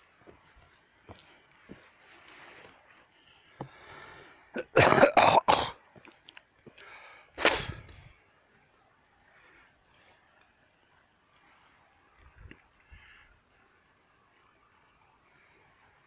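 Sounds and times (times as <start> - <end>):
person coughing: 4.6 - 5.8.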